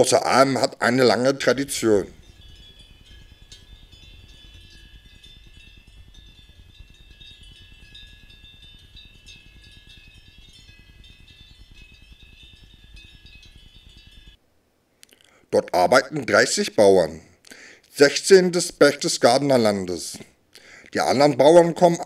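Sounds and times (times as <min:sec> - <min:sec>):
low rumble of wind: 0:00.0 - 0:14.9
cowbells clinking and ringing: 0:01.9 - 0:14.4.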